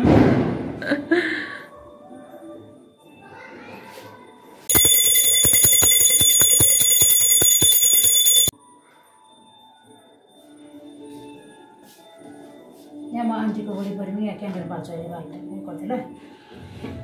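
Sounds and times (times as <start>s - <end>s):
small hand bell rung rapidly: 4.7s - 8.5s.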